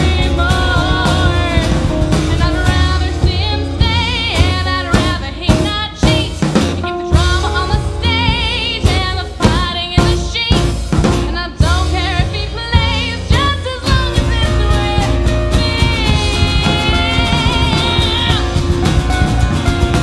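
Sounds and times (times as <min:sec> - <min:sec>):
woman singing with vibrato: 0:00.0 - 0:19.3
acoustic guitar: 0:00.0 - 0:20.0
electric guitar: 0:00.0 - 0:20.0
upright bass: 0:00.0 - 0:20.0
drum hits: 0:08.3 - 0:20.0.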